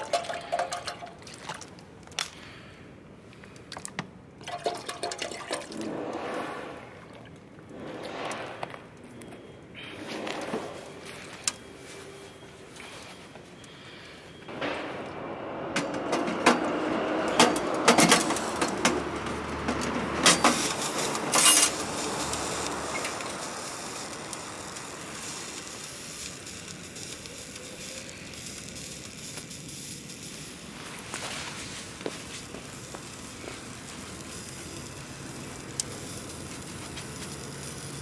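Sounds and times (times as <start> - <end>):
wood fire crackling and popping: 14.5 - 38.0.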